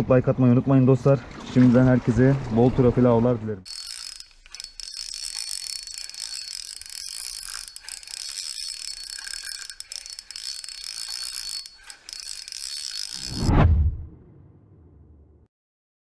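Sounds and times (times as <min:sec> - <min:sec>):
fishing reel winding and clicking: 0:03.7 - 0:13.5
loud low whoosh: 0:13.4 - 0:15.5.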